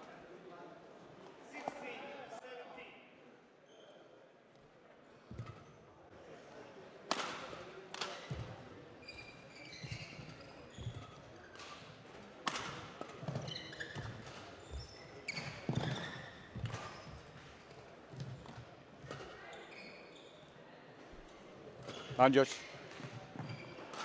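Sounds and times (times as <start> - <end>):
court shoes squeaking: 3.7 - 4.1, 5.1 - 5.9, 8.0 - 24.0.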